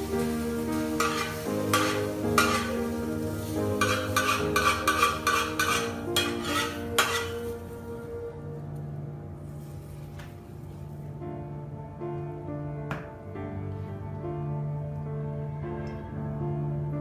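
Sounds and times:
background music: 0:00.0 - 0:17.0
metal spatula scraping pan: 0:00.9 - 0:02.9, 0:03.7 - 0:07.6.

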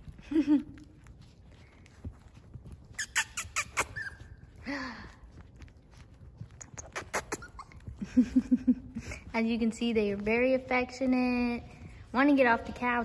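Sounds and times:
puppy squeaking: 0:02.2 - 0:04.6, 0:06.4 - 0:08.0
puppy crying: 0:02.9 - 0:04.6, 0:06.9 - 0:08.0.

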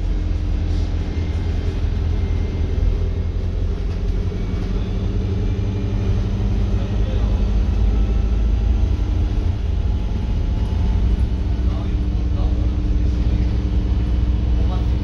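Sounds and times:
bus engine drone: 0:00.0 - 0:15.0
road rumble: 0:00.0 - 0:15.0.

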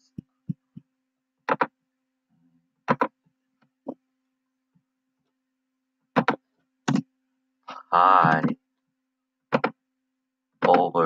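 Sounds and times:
computer mouse clicking: 0:09.5 - 0:09.8.

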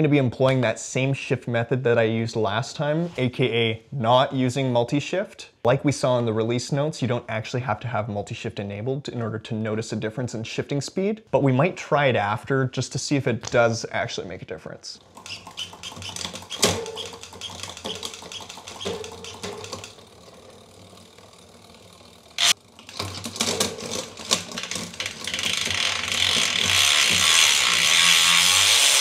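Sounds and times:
bicycle chain clicking over cassette: 0:15.0 - 0:29.0.

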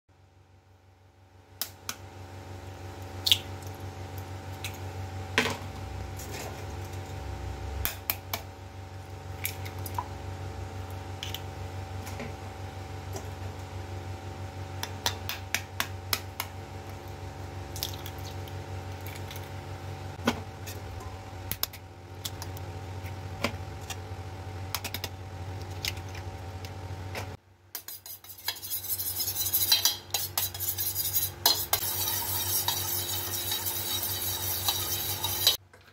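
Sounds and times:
steady low hum: 0:00.2 - 0:35.6
spoon beating eggs in bowl: 0:27.8 - 0:35.6.

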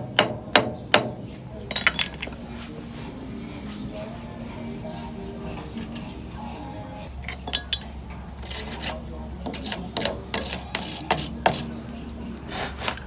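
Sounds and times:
metal clinks: 0:01.7 - 0:02.4, 0:05.8 - 0:06.1, 0:07.2 - 0:08.0.

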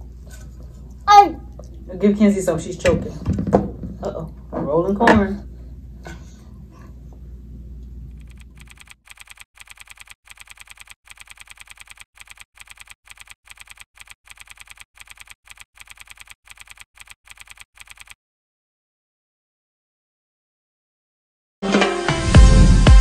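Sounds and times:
keyboard typing clicks: 0:08.1 - 0:18.2.

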